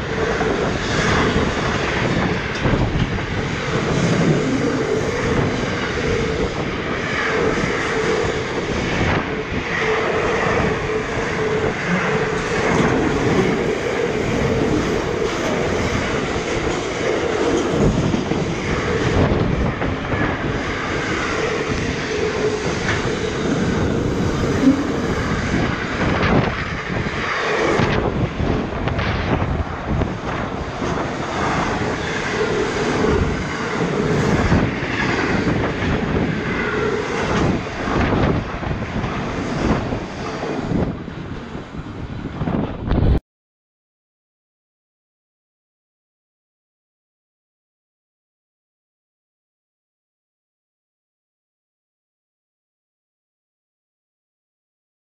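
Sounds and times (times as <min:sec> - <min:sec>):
metallic wheel whine: 0:00.0 - 0:42.9
train wheels rumbling on rail: 0:00.0 - 0:43.2.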